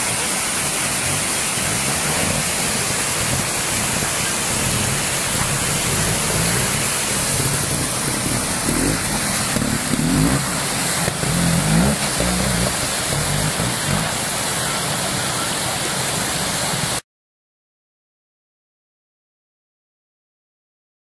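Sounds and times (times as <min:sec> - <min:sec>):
motorcycle engine revving: 0:00.0 - 0:16.2
fast-flowing water rushing: 0:00.0 - 0:17.0.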